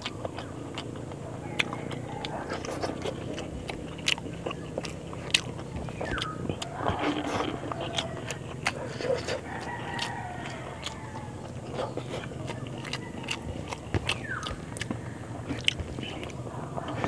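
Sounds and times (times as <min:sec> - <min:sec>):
chewing and mouth clicks: 0:00.0 - 0:17.0
rooster crowing: 0:01.2 - 0:03.2, 0:06.0 - 0:15.2.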